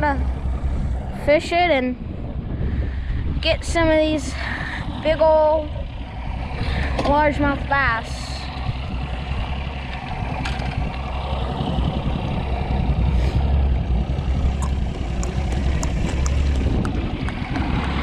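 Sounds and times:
outboard motor rumble: 0:00.0 - 0:18.0
wind: 0:00.0 - 0:18.0
water noise: 0:06.3 - 0:18.0.

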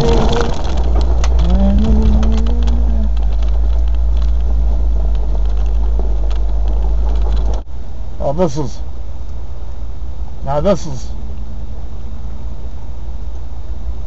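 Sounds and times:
knocks and rattles: 0:00.0 - 0:07.7
four-wheel drive rumbling: 0:00.0 - 0:08.9, 0:10.2 - 0:14.0.

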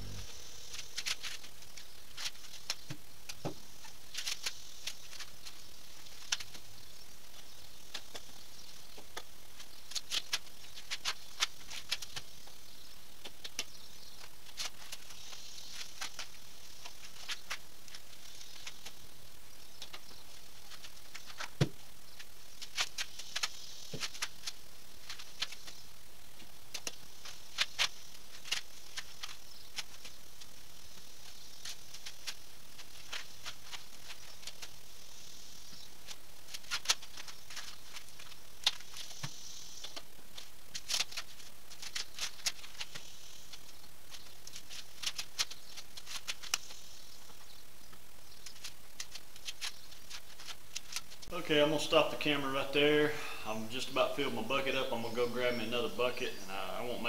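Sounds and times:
faint high hiss: 0:00.0 - 0:11.0, 0:12.2 - 0:57.0
corn husks crackling and tearing: 0:00.0 - 0:52.8.

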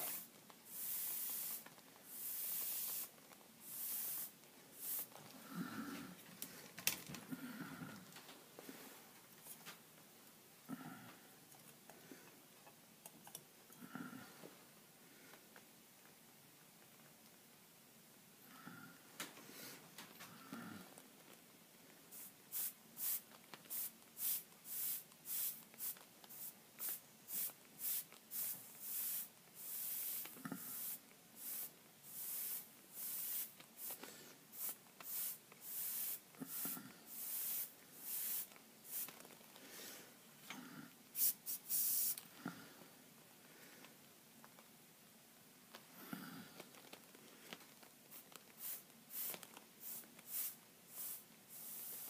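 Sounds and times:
airbrush spraying hiss: 0:00.0 - 0:05.2, 0:22.1 - 0:39.2, 0:41.1 - 0:42.2, 0:48.1 - 0:52.0.

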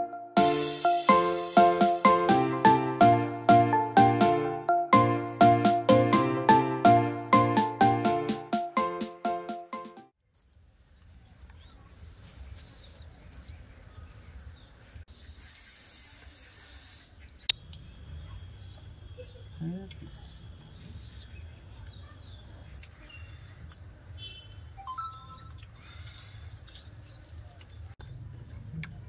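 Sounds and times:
brief hiss: 0:15.2 - 0:17.2.

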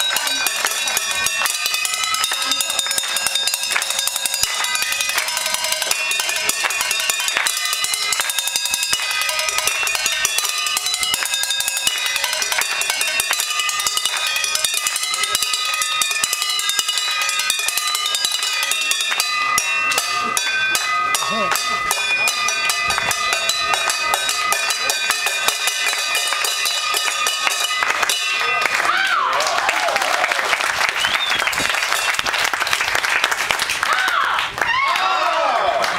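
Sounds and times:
drumsticks striking metal pots: 0:00.0 - 0:28.4.

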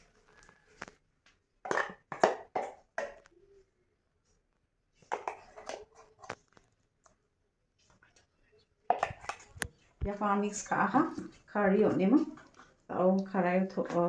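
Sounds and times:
hand squeezing paste in bowl: 0:08.9 - 0:12.9.

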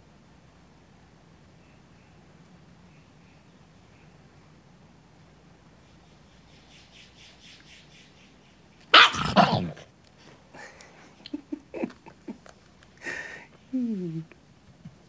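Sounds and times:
small dog barking: 0:08.9 - 0:09.8.

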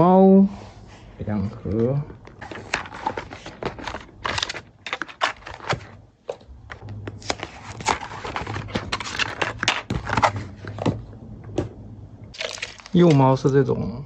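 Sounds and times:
cardboard boxes handled: 0:02.1 - 0:11.7.

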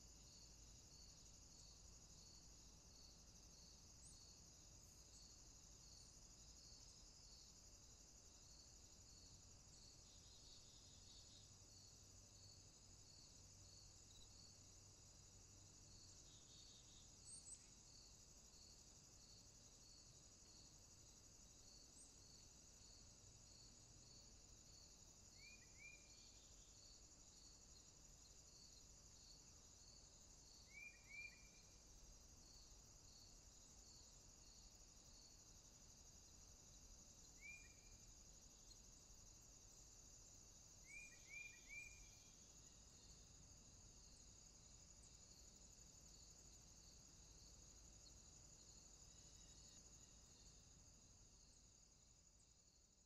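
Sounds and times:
crickets trilling: 0:00.0 - 0:53.0
small bird chirping: 0:40.8 - 0:42.4.

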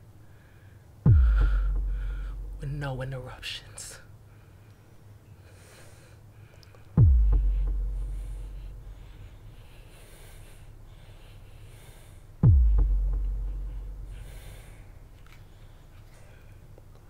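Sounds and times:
person breathing heavily: 0:00.3 - 0:02.6, 0:04.2 - 0:16.8
deep cinematic boom: 0:01.1 - 0:03.1, 0:07.0 - 0:09.6, 0:12.4 - 0:14.8.

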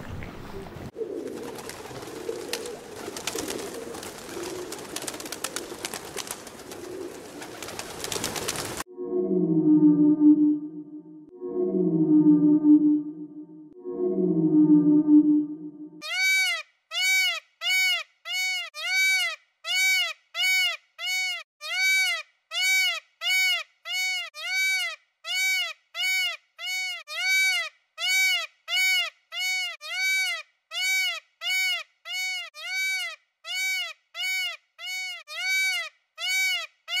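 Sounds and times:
peacock calling: 0:16.0 - 0:37.0.

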